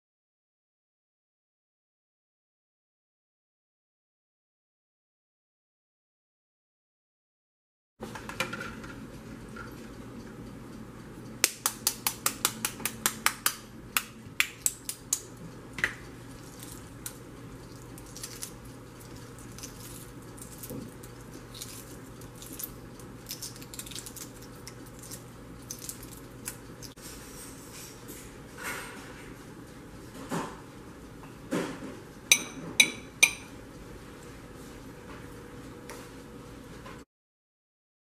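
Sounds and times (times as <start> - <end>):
egg shell tapping: 11.4 - 16.0
shell crackling as peeled: 16.3 - 26.9.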